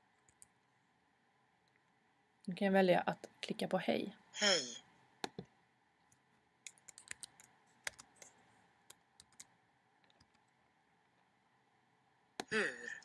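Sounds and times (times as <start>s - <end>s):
keyboard keystrokes: 6.7s - 8.2s.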